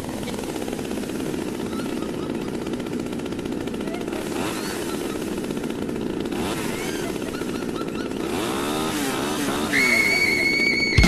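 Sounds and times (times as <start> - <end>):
chainsaw revving: 0.0 - 11.0.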